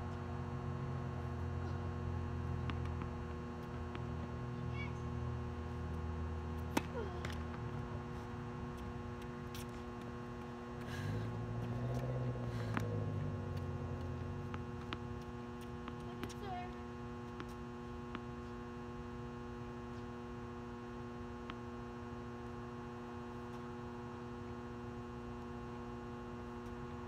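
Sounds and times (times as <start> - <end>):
steady electrical hum: 0.0 - 27.0.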